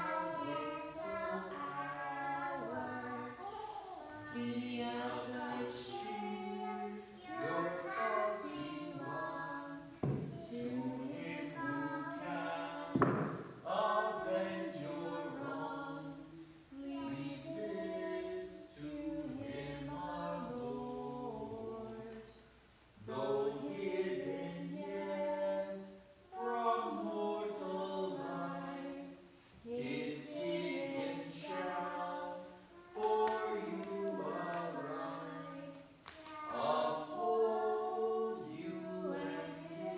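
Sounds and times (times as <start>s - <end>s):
choir singing: 0.0s - 22.4s, 23.0s - 39.9s.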